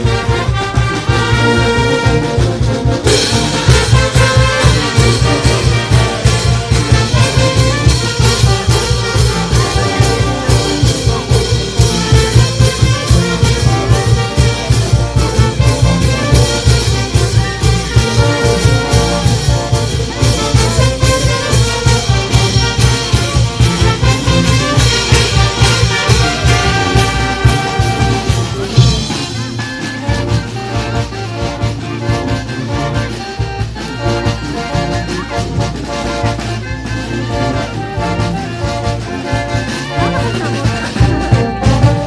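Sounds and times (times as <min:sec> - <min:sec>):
brass band playing: 0:00.0 - 0:42.0
drums and cymbals beat: 0:00.0 - 0:42.0.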